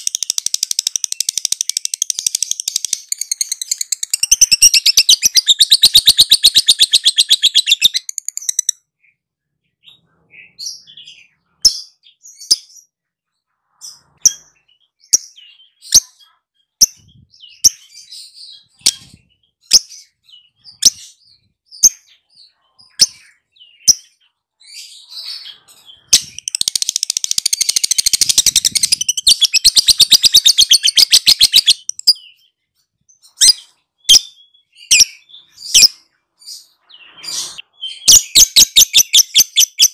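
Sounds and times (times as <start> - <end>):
bird rapid high chattering: 0.0 - 8.7, 25.2 - 32.2
bird sharp chirps: 0.0 - 12.9, 13.6 - 39.9.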